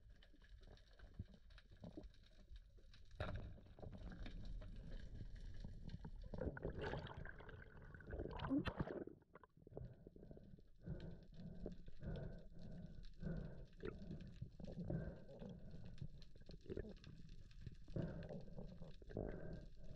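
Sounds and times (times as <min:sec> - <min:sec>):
underwater rushing and gurgling: 0:06.1 - 0:10.3.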